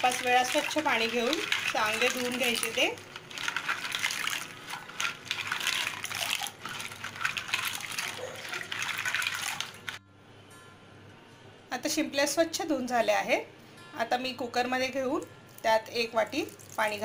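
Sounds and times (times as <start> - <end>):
water splashing and sloshing: 0.0 - 10.0.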